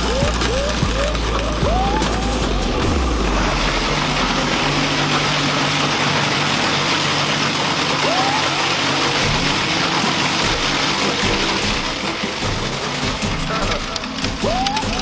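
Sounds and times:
low motor hum: 0:00.0 - 0:15.0
shredder whirring and grinding: 0:00.0 - 0:15.0.

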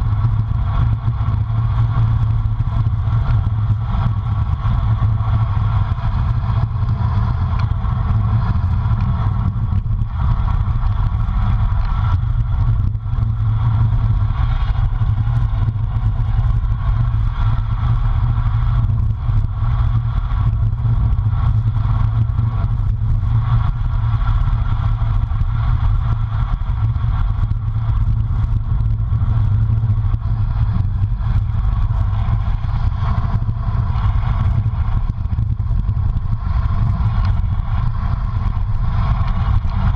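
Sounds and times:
road hum: 0:00.0 - 0:39.9
wind rush on microphone: 0:00.0 - 0:39.9.

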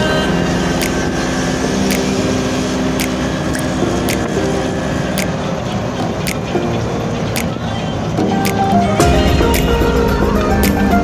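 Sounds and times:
engine and road noise: 0:00.0 - 0:11.0.

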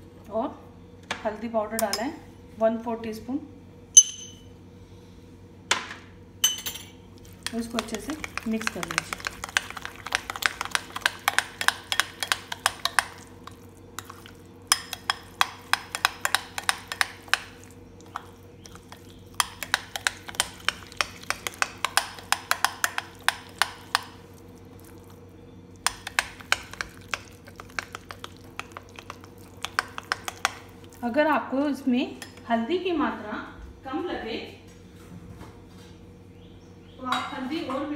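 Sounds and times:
spoon scraping glass bowl: 0:06.5 - 0:24.1, 0:25.9 - 0:31.0.

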